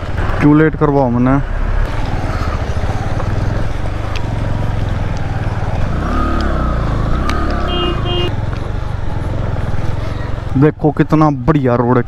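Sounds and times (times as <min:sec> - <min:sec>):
motorcycle engine at low speed: 0:00.0 - 0:12.0
motorcycle horn beep: 0:07.6 - 0:08.4.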